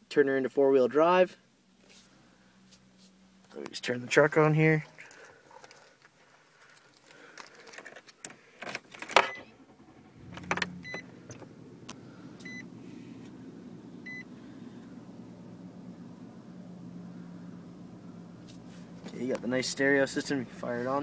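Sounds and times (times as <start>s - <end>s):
truck engine starting and idling: 8.8s - 21.0s
short high dashboard beep: 10.7s - 11.1s, 12.4s - 12.7s, 14.0s - 14.3s.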